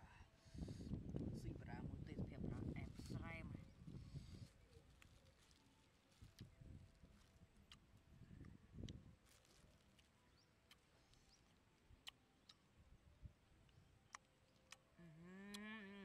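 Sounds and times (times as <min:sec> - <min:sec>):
faint clicks of fruit cracking: 0:07.1 - 0:12.7, 0:13.6 - 0:15.9.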